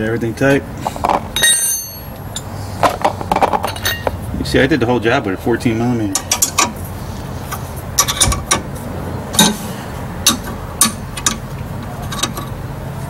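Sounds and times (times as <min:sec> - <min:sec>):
wrench clicking on bolts: 0:08.0 - 0:08.7, 0:09.4 - 0:09.6, 0:10.2 - 0:12.6.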